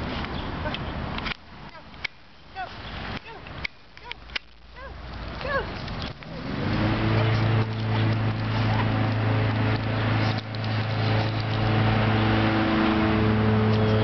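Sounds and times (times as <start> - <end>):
engine droning steadily: 5.4 - 14.0.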